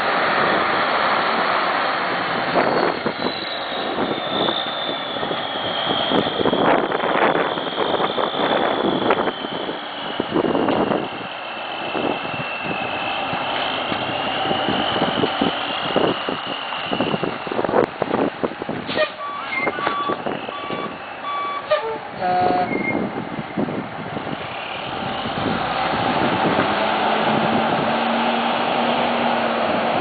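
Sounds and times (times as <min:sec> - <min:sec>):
truck engine running: 0:00.0 - 0:30.0
reversing beeper beeps: 0:19.2 - 0:21.8, 0:22.5 - 0:23.0.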